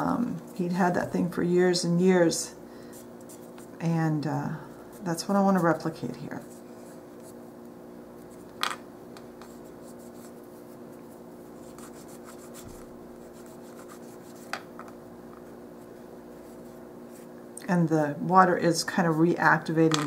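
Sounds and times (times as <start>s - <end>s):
steady low hum: 0.0s - 20.0s
cotton swab rubbing paper: 9.4s - 14.5s.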